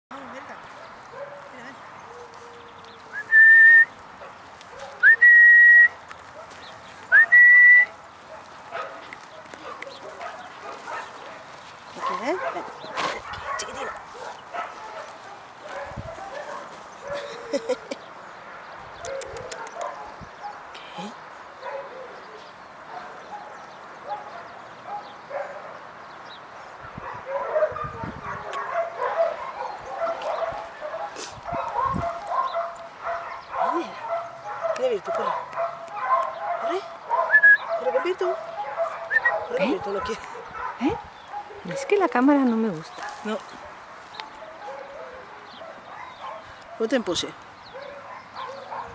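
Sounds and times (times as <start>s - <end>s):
loud whistles to a dog: 3.2s - 3.9s, 5.0s - 6.0s, 7.1s - 7.9s, 37.3s - 37.6s, 39.1s - 39.3s.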